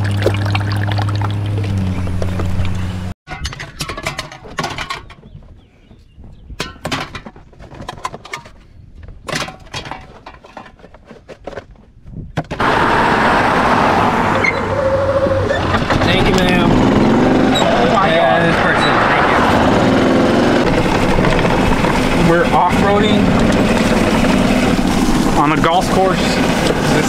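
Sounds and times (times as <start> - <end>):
wind and road noise: 0.0 - 27.0
cans clattering into plastic bin: 9.3 - 10.9.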